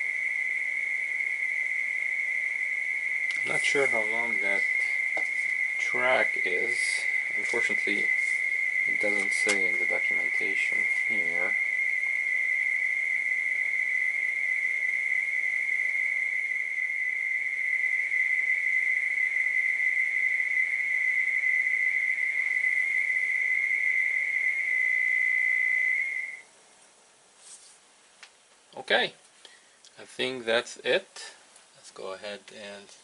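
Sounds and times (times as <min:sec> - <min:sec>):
faint hiss: 0:00.0 - 0:33.0
modem carrier tone: 0:03.0 - 0:26.5.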